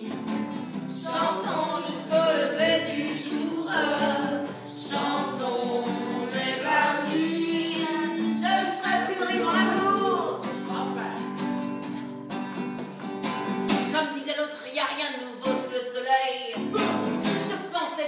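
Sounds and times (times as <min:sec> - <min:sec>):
acoustic guitar strumming: 0:00.0 - 0:14.1, 0:16.5 - 0:17.6
people singing along: 0:00.8 - 0:11.0
woman singing: 0:00.9 - 0:11.0, 0:13.9 - 0:18.0.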